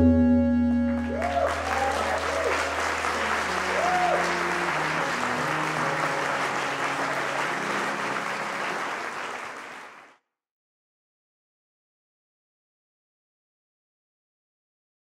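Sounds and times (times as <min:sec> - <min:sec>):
audience applauding: 0:01.0 - 0:10.2.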